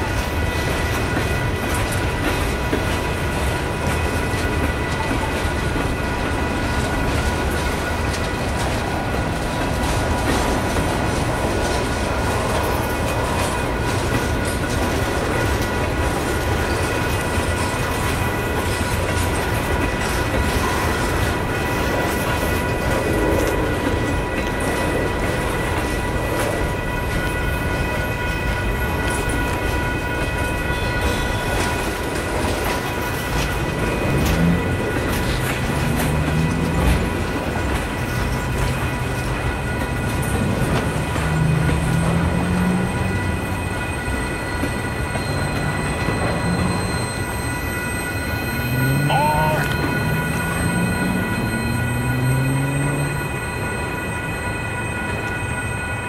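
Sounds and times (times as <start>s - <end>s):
train wheels rumbling on rails: 0.0s - 56.0s
clicking over rail joints: 0.1s - 43.2s.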